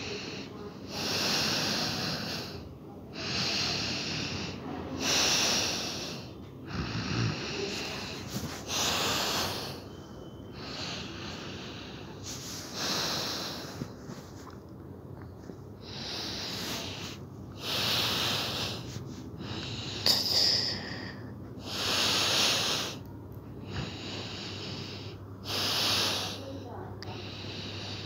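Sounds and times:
person snoring: 0.0s - 9.9s, 15.8s - 23.0s.

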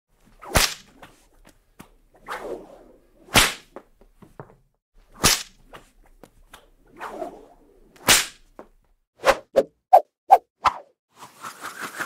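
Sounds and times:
whip swishing through air: 0.2s - 3.9s, 5.1s - 10.9s
whip cracks: 0.3s - 1.2s, 2.2s - 3.8s, 5.1s - 5.9s, 6.5s - 8.6s.

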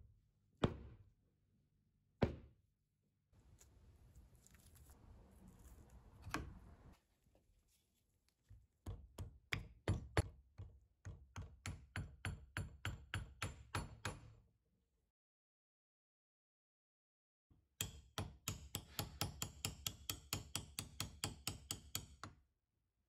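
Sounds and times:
soft handling noises: 3.4s - 8.7s
hammer tapping on steel shaft: 17.8s - 22.3s.

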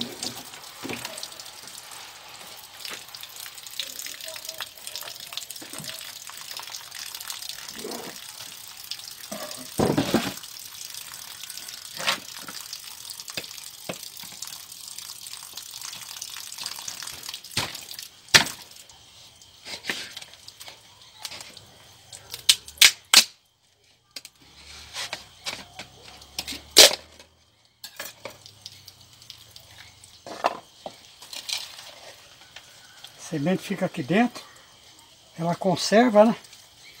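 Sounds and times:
steady hiss: 0.0s - 23.4s, 28.0s - 37.0s
thump: 9.8s - 10.4s
knife cracking hard gourd shell: 22.4s - 23.4s.

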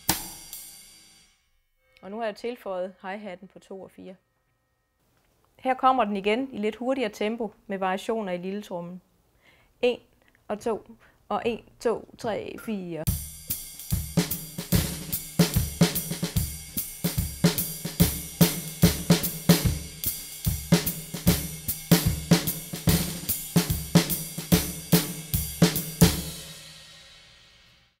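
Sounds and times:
drum kit swing groove: 0.0s - 0.8s, 13.1s - 27.7s.

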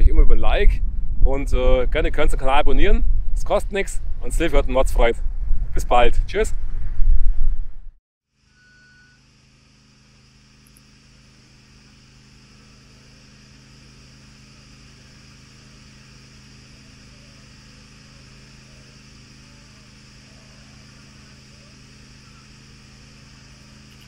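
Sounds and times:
low machine hum: 7.6s - 24.0s
high hiss: 8.4s - 24.0s.

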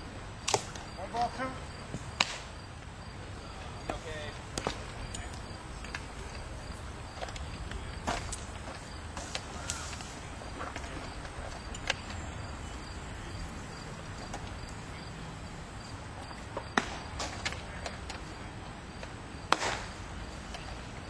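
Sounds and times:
baseball smacking a leather glove: 1.9s - 2.5s, 3.8s - 10.0s, 16.5s - 18.2s, 19.5s - 20.0s.

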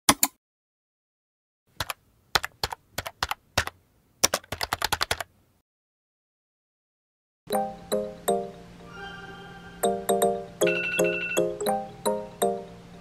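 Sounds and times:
keyboard keystrokes: 1.8s - 5.3s.

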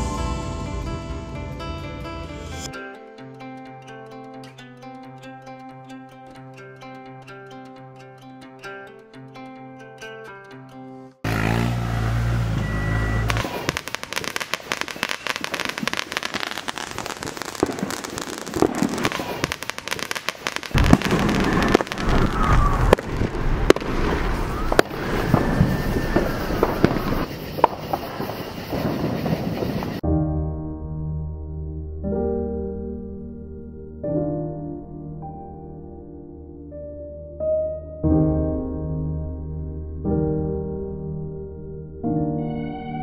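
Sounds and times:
heavy low rumble: 0.0s - 2.7s
whistling glides: 12.5s - 14.2s, 21.4s - 30.0s
rapid crackling and popping: 13.3s - 30.0s.

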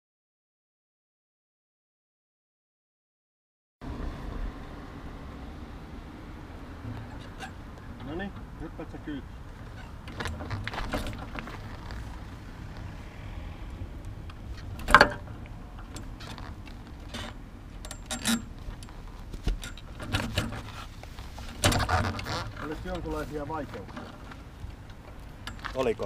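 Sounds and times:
bicycle trailer rattling: 6.8s - 12.9s, 14.0s - 26.0s.

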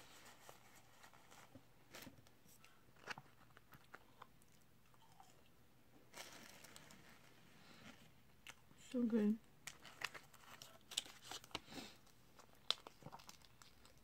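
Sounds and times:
person chewing: 2.6s - 5.5s, 9.6s - 14.0s.

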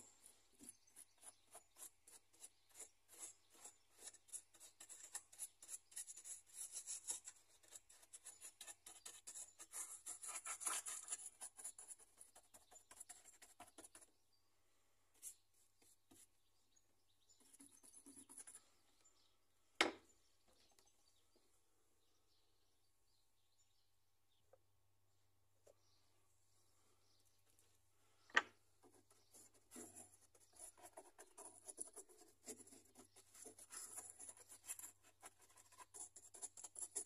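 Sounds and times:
paintbrush scrubbing rough surface: 0.2s - 14.0s.

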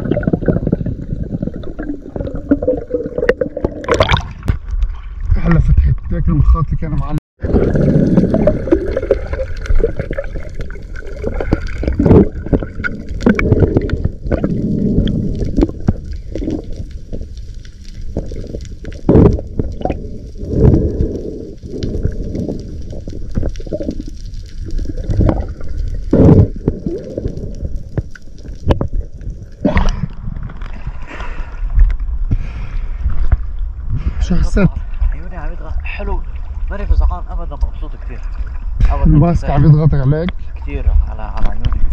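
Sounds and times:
sea water splashing: 0.0s - 5.4s, 7.4s - 31.7s
muffled underwater water rushing: 0.0s - 41.9s.

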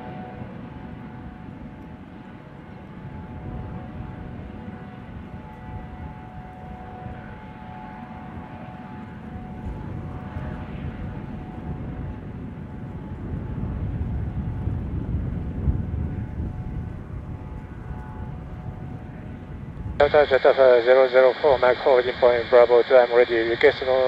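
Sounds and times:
helicopter rotor rumble: 0.0s - 24.0s
turbine whining tones: 0.0s - 24.0s.

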